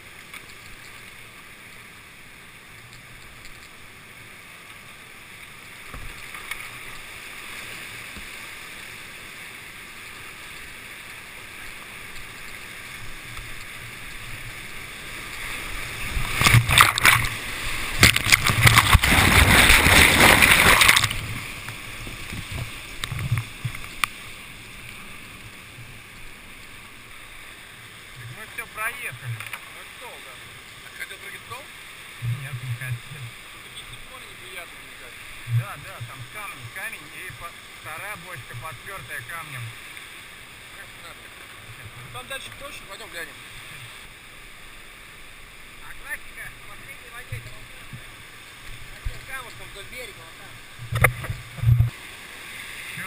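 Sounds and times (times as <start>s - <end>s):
rushing whitewater: 0.0s - 53.0s
water splashing over camera: 11.6s - 25.1s, 31.0s - 40.0s, 45.8s - 53.0s.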